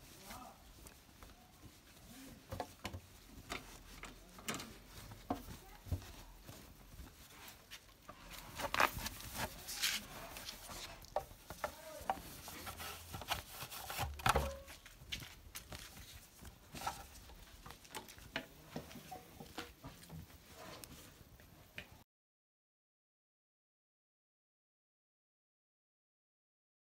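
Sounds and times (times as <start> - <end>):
cloth rubbing on metal: 0.0 - 15.1.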